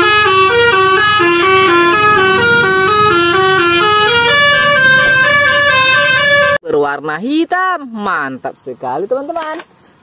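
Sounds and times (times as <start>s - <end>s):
bus musical air horn tune: 0.0s - 6.6s.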